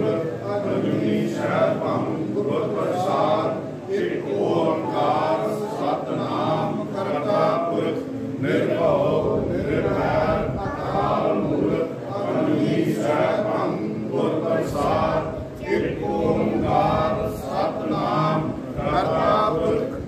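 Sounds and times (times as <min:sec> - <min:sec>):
men and boys chanting prayer: 0:00.0 - 0:20.0.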